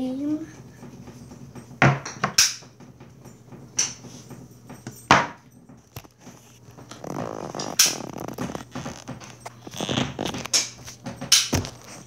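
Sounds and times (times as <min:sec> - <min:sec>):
rustling handling noise: 0:03.4 - 0:12.0.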